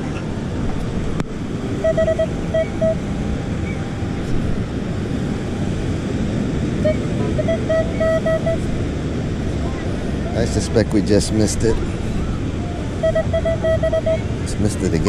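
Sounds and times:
wind: 0.0 - 15.0
metal detector beeps: 1.8 - 3.0, 13.0 - 14.2.

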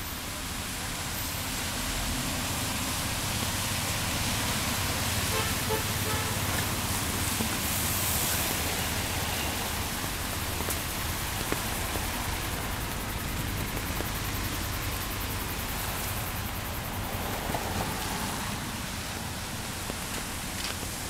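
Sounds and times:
rain hissing: 0.0 - 21.0.

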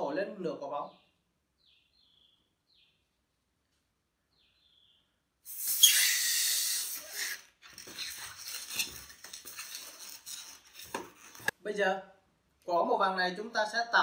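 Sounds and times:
breath blowing up balloon: 5.4 - 8.8
balloon rubbery squeaks: 5.5 - 11.5.

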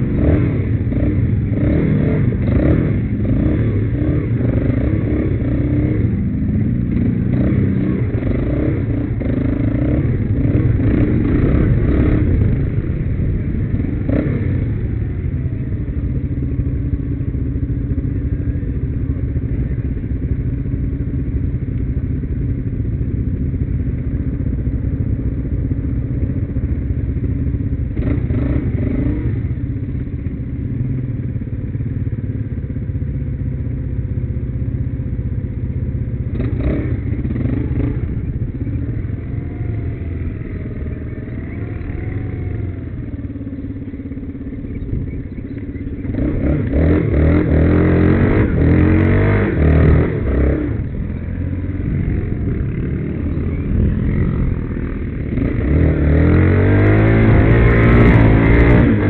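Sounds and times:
quad bike engine running: 0.0 - 59.0.

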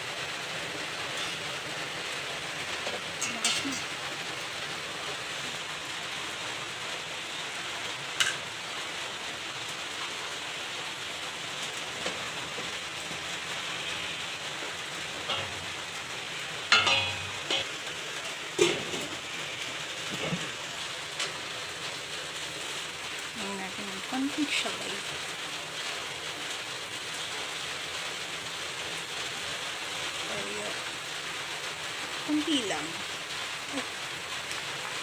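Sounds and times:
steady hiss: 0.0 - 35.0
glass lid knocking on metal pot: 16.7 - 17.6.

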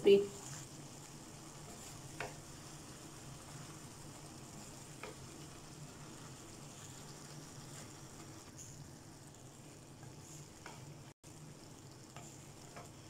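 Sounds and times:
vegetables sizzling in a wok: 0.0 - 13.0
wooden spatula stirring: 0.3 - 13.0
spatula tapping pan: 1.5 - 3.6, 4.6 - 5.6, 10.6 - 10.9, 12.1 - 13.0.

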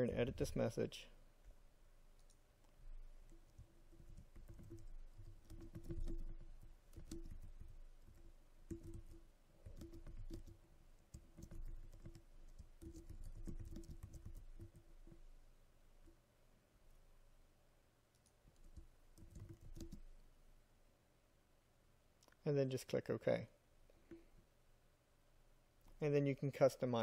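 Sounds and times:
typing on keyboard: 3.2 - 14.9, 18.1 - 20.1.

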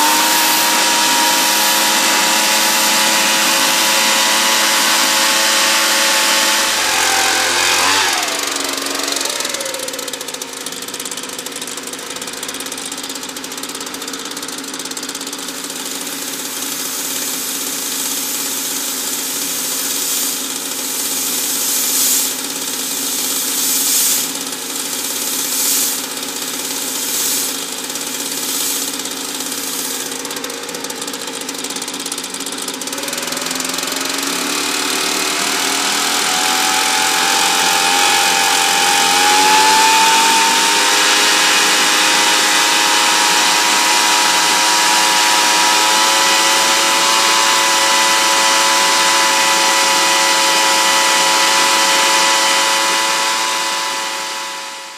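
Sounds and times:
short hissing bursts: 0.0 - 10.8, 15.4 - 31.4
gas turbine engine whine: 0.0 - 12.9, 15.5 - 30.8, 32.9 - 54.9.

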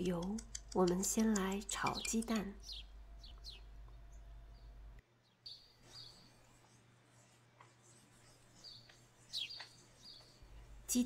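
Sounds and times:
low hum: 0.0 - 5.0.

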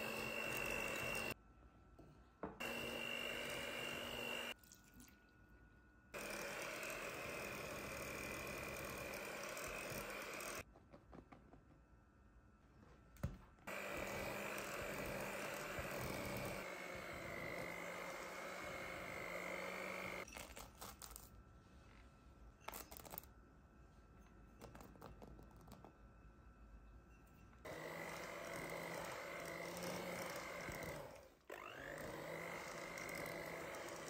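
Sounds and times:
electric hand mixer whining: 0.0 - 1.4, 2.6 - 4.6, 6.2 - 10.6, 13.7 - 20.3, 27.7 - 34.0.

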